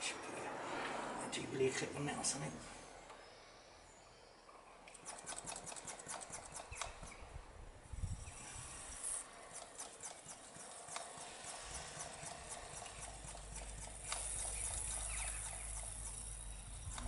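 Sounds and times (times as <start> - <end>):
brake bleeder clicking and gurgling: 9.5 - 17.0.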